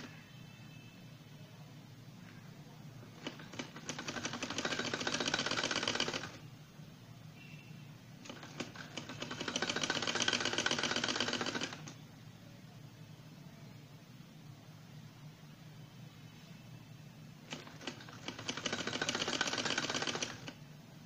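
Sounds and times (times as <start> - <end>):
sewing machine stitching: 3.1 - 6.4, 8.2 - 12.0, 17.5 - 20.6.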